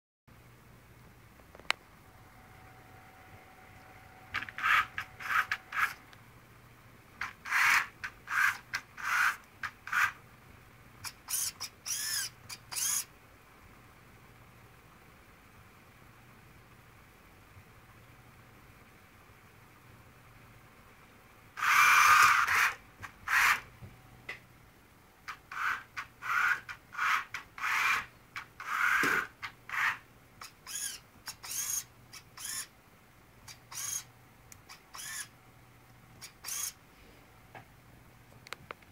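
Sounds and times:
small electric motors whirring: 4.3s - 6.0s, 7.4s - 10.2s, 11.0s - 13.1s, 21.6s - 23.6s, 25.5s - 32.7s, 33.5s - 35.3s, 36.2s - 36.8s.

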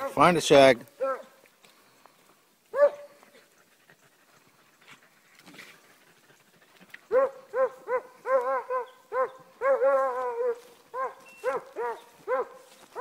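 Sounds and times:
hound baying: 0.9s - 1.4s, 2.7s - 5.0s, 5.9s - 13.0s.

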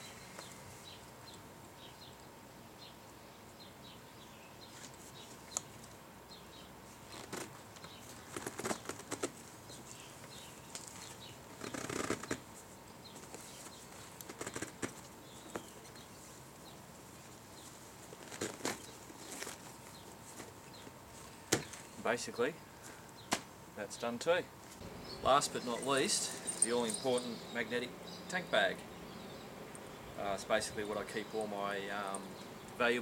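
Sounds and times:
nylon strap rustling: 7.0s - 12.5s, 13.2s - 16.4s, 17.1s - 22.0s, 25.5s - 27.8s.

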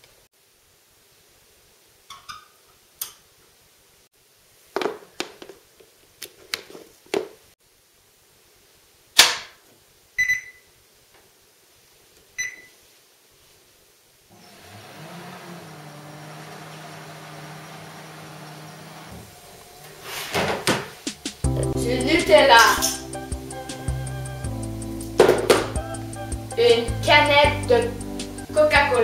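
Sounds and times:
treadmill console beeping: 10.2s - 10.6s, 12.4s - 12.7s
treadmill motor humming: 14.3s - 21.5s.

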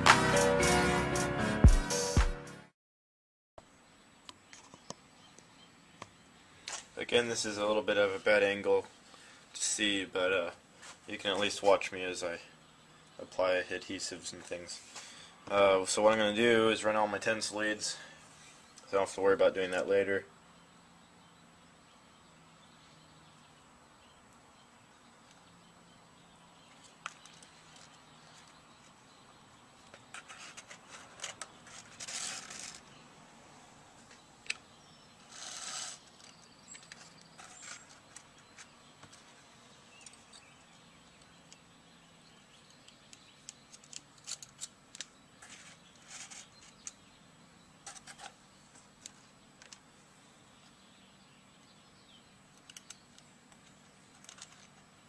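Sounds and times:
paper cone rustles and scrapes: 30.1s - 32.9s, 35.2s - 39.4s, 45.4s - 46.8s, 47.8s - 48.4s
small handling clicks: 42.7s - 45.1s, 52.5s - 54.8s.

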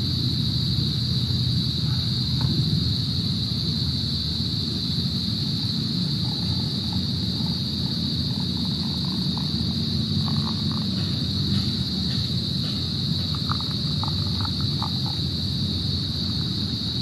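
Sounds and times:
water trickling into coffee filter: 6.2s - 10.9s.

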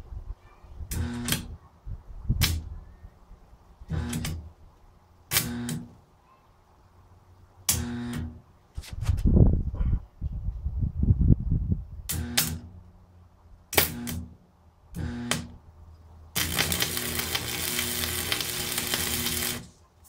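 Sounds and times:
arc welder buzzing and crackling: 0.9s - 1.5s, 3.9s - 4.5s, 5.3s - 6.0s, 7.7s - 8.4s, 12.1s - 12.8s, 13.7s - 15.6s, 16.3s - 19.8s.

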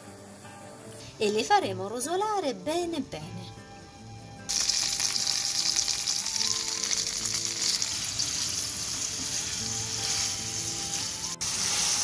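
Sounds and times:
sausages sizzling in frying pan: 0.0s - 1.6s, 4.5s - 12.0s.

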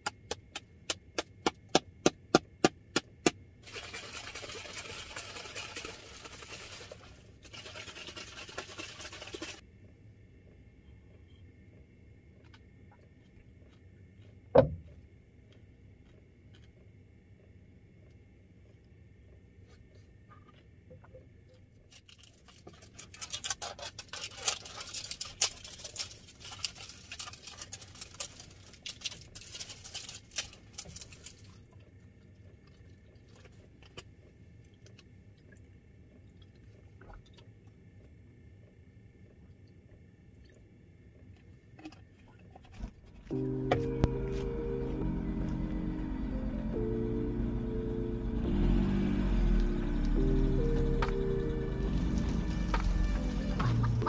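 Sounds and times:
plastic bottle crinkling: 22.0s - 31.6s.

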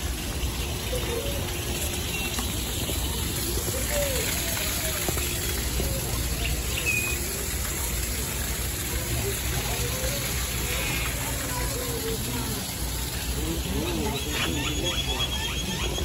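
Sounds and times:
faint bird chirps and calls: 6.4s - 7.3s, 13.8s - 16.0s.

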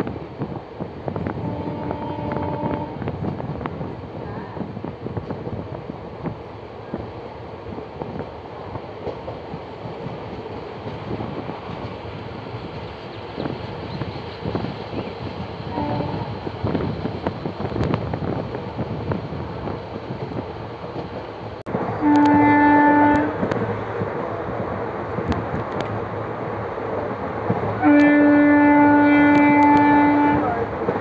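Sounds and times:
moving train rumble: 0.0s - 31.0s
train horn: 1.3s - 3.1s, 15.7s - 16.4s, 22.0s - 23.6s, 27.8s - 30.7s.

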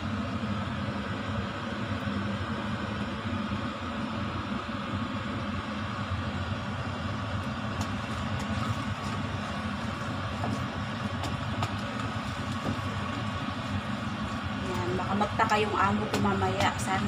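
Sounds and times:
steady low rumble: 0.0s - 17.0s
wooden spoon stirring sticky rice: 7.8s - 15.0s.

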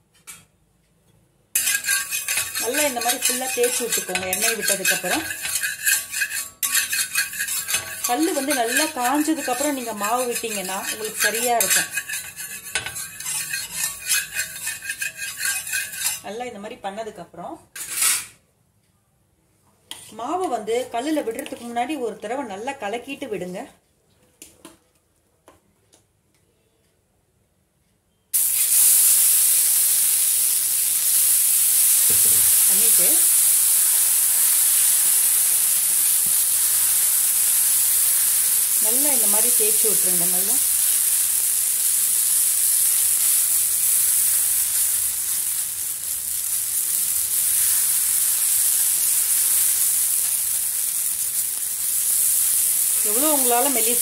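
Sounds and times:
ladle spreading batter: 1.6s - 16.2s
batter sizzling on hot griddle: 1.6s - 16.3s, 28.4s - 54.0s.

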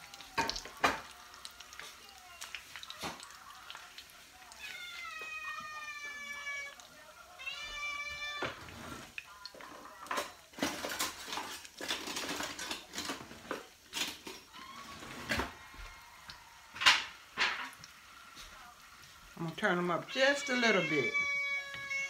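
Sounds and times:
crab cakes frying in grease: 0.0s - 22.0s
cat meowing: 4.4s - 10.0s, 20.0s - 22.0s.

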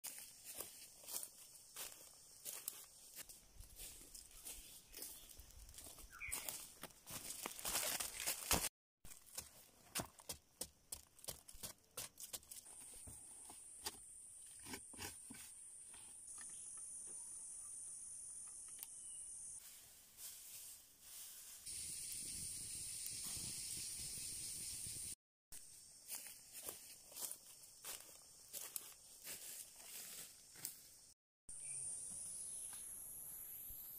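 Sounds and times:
stick scraping dry earth: 11.0s - 16.2s
high-pitched insect drone: 16.3s - 19.6s, 21.7s - 30.7s, 31.6s - 33.9s.

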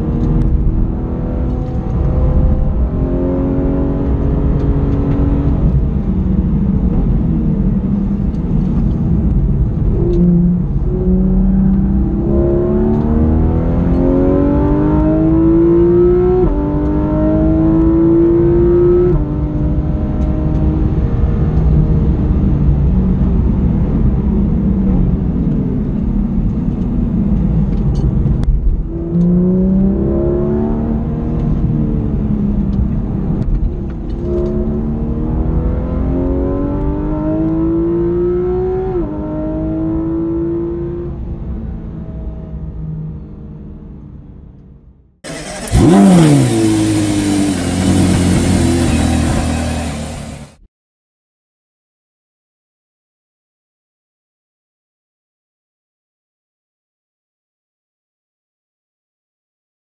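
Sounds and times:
car engine accelerating hard: 0.0s - 44.0s, 45.2s - 50.6s.

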